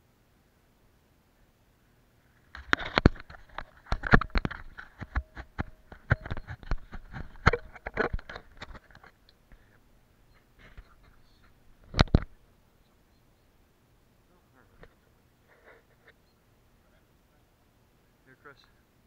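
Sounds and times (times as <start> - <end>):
hand handling camera: 2.4 - 9.2.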